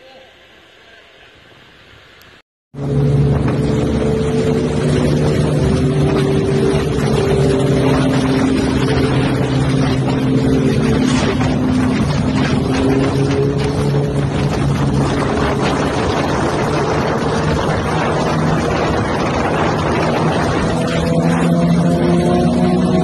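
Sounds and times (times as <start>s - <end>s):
motorcycle engine running: 2.8s - 23.0s
wind noise on microphone: 2.8s - 23.0s.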